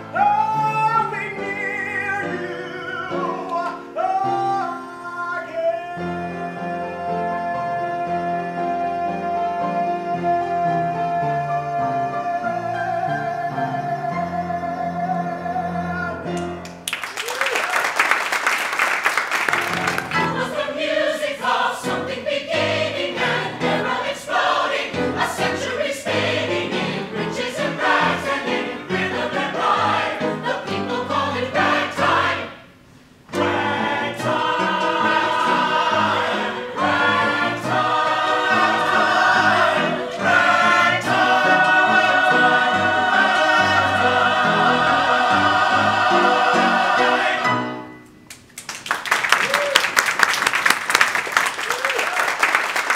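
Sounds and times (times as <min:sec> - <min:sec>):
ensemble singing in chorus: 0:20.0 - 0:47.8.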